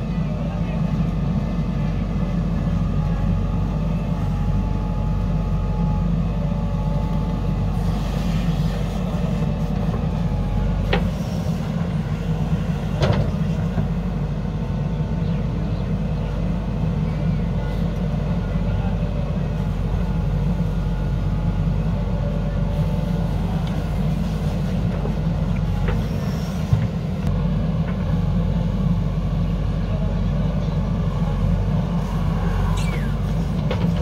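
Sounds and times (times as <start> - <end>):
diesel engine under load: 0.0 - 34.0
backhoe digging soil: 7.4 - 14.0, 31.9 - 34.0.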